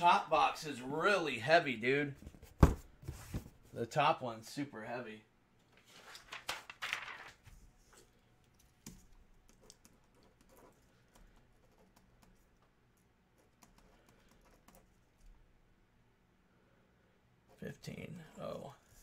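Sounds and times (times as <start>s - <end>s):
computer keyboard typing: 8.8s - 12.4s.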